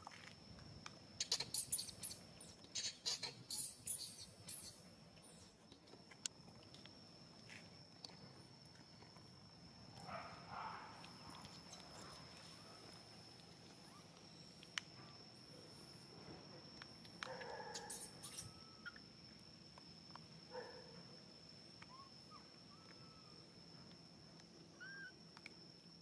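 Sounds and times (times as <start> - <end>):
high animal squeaks: 1.2 - 4.8, 17.7 - 19.0.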